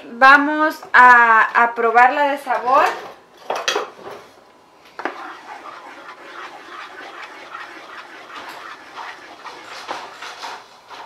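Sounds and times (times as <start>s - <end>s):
spoon scraping and sauce sloshing: 4.9s - 11.0s.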